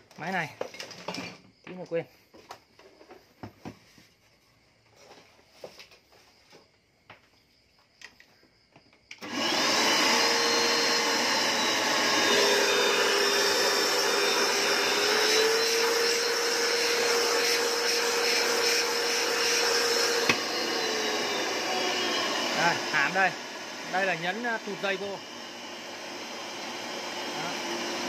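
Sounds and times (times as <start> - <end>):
vacuum cleaner motor whining: 9.1 - 28.0.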